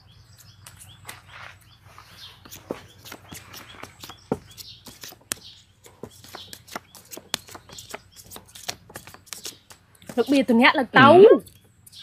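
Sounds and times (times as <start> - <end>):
playing cards shuffled and dealt: 2.4 - 10.4.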